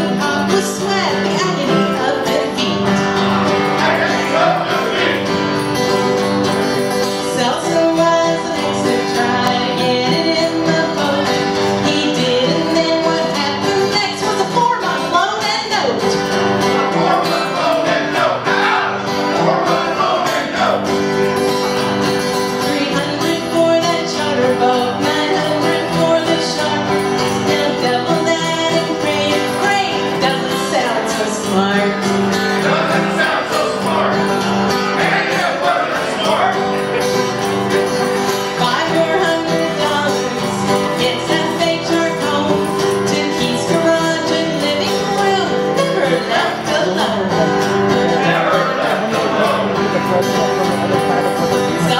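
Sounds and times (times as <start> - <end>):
acoustic guitar strummed: 0.0 - 51.9
people singing along: 1.6 - 5.6, 16.5 - 21.4, 22.6 - 50.1.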